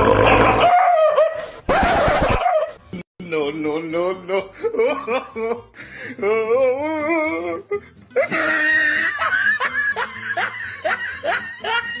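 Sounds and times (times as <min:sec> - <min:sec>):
person laughing: 0:04.4 - 0:12.0.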